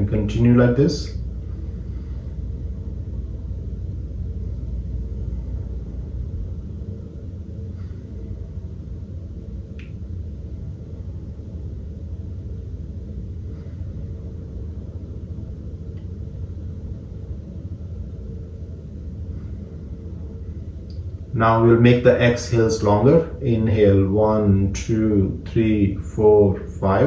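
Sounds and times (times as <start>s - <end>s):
low room rumble: 0.0s - 27.0s
faint soft clicks: 9.7s - 10.0s, 20.9s - 21.1s.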